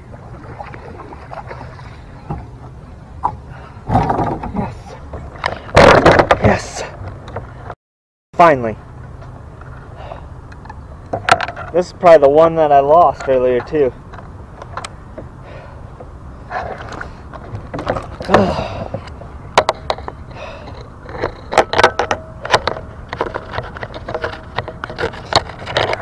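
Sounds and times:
steady low background noise: 0.0s - 7.7s, 8.4s - 26.0s
handling clicks and knocks: 10.5s - 11.8s, 16.8s - 26.0s.

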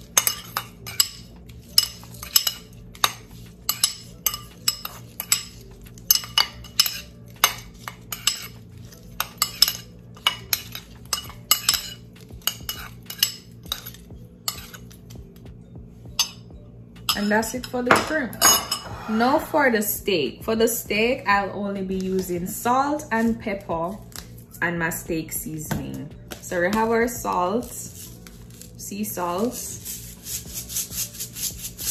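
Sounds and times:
metal spoon scraping ceramic bowl: 0.0s - 15.0s, 17.1s - 19.5s.

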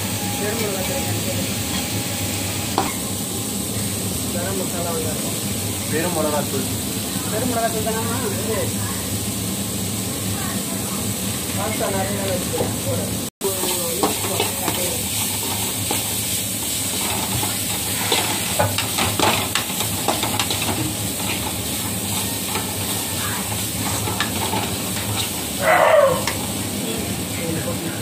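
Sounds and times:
vegetables sizzling in a pan: 0.0s - 28.0s
metal ladle scraping a pan: 13.6s - 25.5s.

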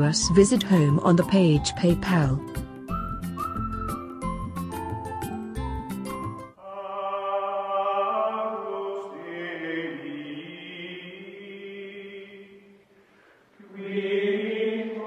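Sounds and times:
choir-like chant: 6.6s - 12.8s, 13.6s - 15.0s.

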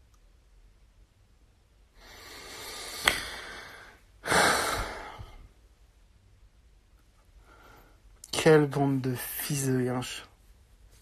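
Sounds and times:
man breathing heavily: 1.9s - 5.6s
man sighing: 2.4s - 5.4s.

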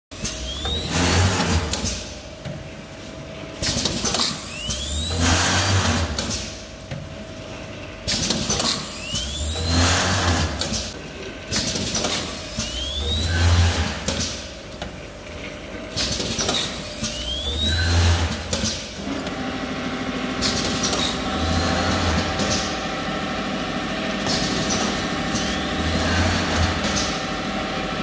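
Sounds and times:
pneumatic air hiss: 0.2s - 2.1s, 3.6s - 6.6s, 8.1s - 10.8s, 11.6s - 14.4s, 16.2s - 18.8s
machine motor hum: 0.2s - 28.0s.

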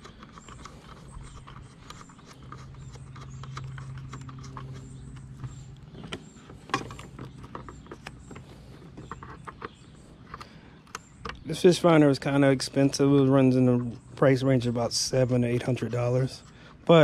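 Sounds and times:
cable plugs clicking and rattling: 0.0s - 11.5s
low steady hum: 0.0s - 17.0s.

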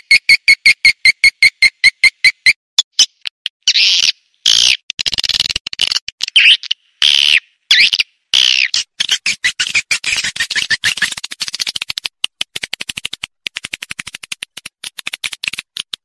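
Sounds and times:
buzzy twittering bird chirps: 6.4s - 11.8s
fast short bird chirps: 7.3s - 12.0s.

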